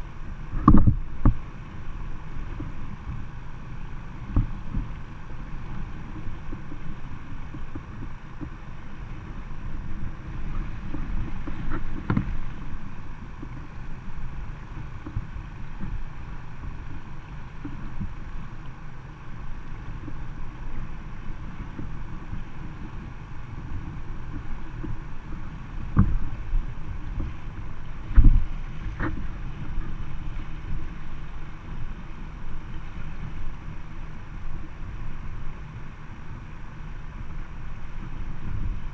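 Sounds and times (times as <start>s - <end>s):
river water rushing and splashing: 0.0s - 38.9s
wind on microphone: 0.0s - 38.9s
dull knocks on boat: 0.6s - 1.4s, 25.9s - 26.4s.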